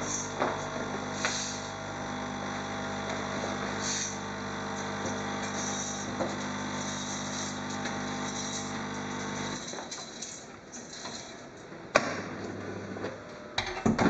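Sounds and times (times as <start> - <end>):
coffee machine pump humming: 0.0 - 9.9
coffee pouring into cup: 4.2 - 9.6.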